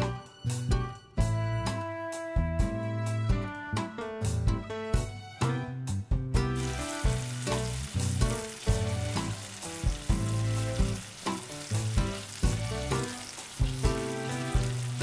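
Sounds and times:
background music with bass line: 0.0 - 15.0
chicken frying in oil: 6.5 - 15.0.

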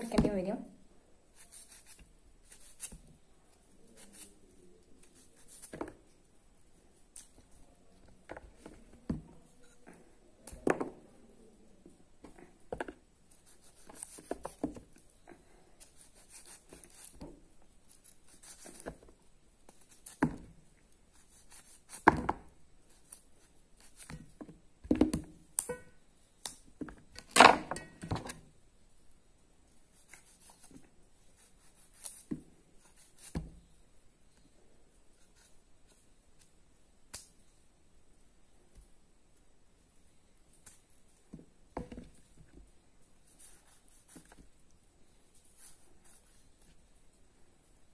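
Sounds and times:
knife cutting raw mango: 1.3 - 6.0.

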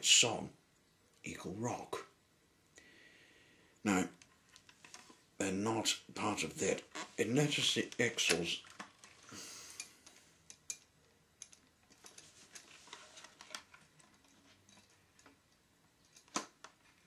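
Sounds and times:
soft rustle: 11.8 - 15.4.

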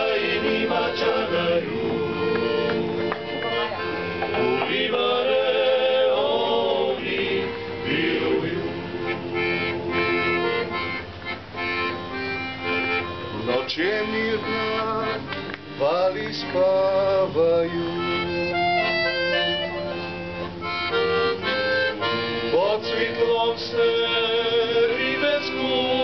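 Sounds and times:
male voices singing harmony: 0.0 - 10.6, 13.4 - 18.2, 22.0 - 26.0
accordion playing chords and melody: 0.0 - 26.0.

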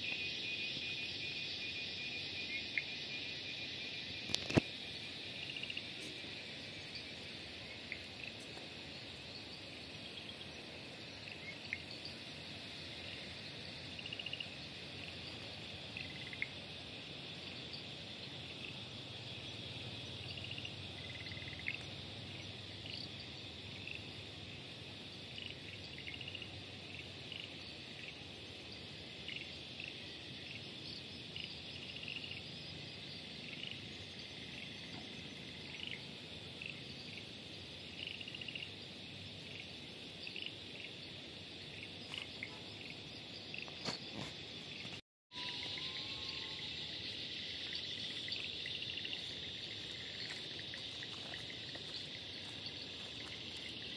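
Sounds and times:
insect chirps: 0.0 - 53.9
insects trilling: 0.0 - 53.9.

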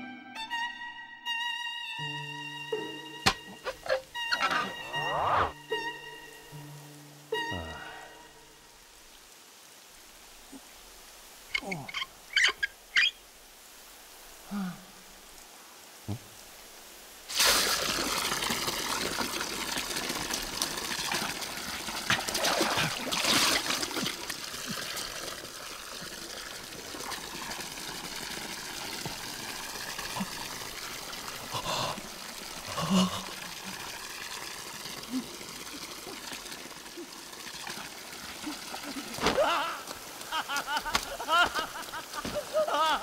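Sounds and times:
short squeaks: 3.5 - 5.5
water pouring from a tap: 17.3 - 39.2.

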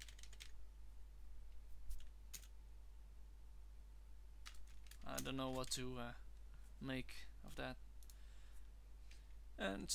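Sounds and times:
computer keyboard keystrokes: 0.0 - 0.6
low steady hum: 0.0 - 9.9.

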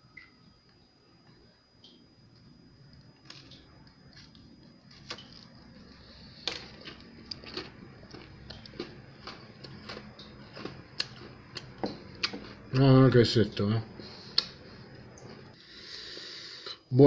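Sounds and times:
chocolate snack crunching: 3.2 - 13.1.

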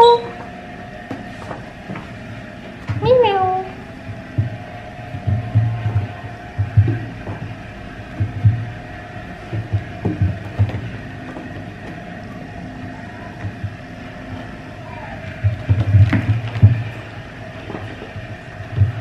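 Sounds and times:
faint hum: 0.0 - 19.0
soft low thuds: 4.0 - 12.2.

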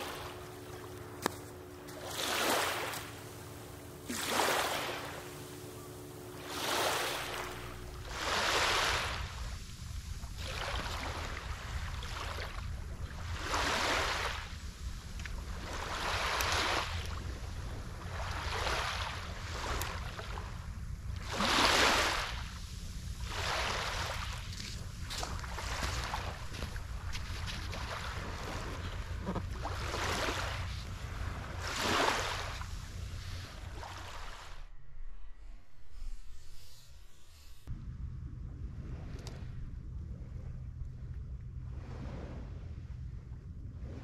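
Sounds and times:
small waves washing on beach: 0.0 - 34.6
wind rumbling on microphone: 6.4 - 36.6, 37.7 - 44.0.

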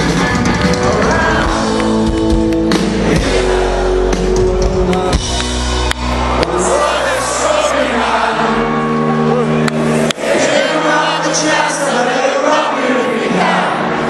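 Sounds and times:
drums: 0.0 - 6.8
bass guitar: 0.0 - 10.1
electric guitars: 0.0 - 10.2
person singing: 0.2 - 5.8.

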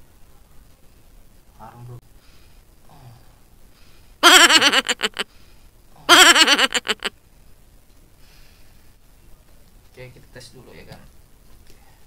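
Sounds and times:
high giggling laugh: 4.2 - 5.2, 6.1 - 7.1.

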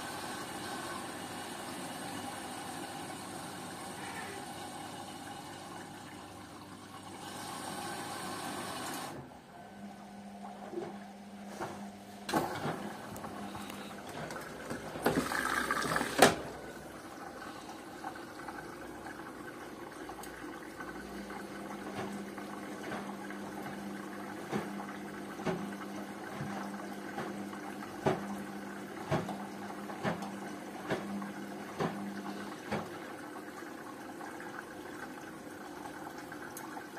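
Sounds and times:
washing machine hum: 0.0 - 36.9
water sloshing in washing machine: 0.0 - 36.9.

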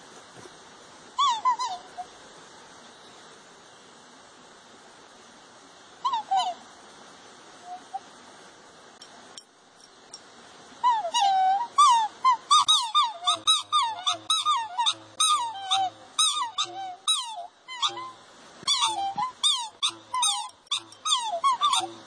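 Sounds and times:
swans calling: 1.1 - 2.2, 6.0 - 6.7, 10.8 - 22.0.

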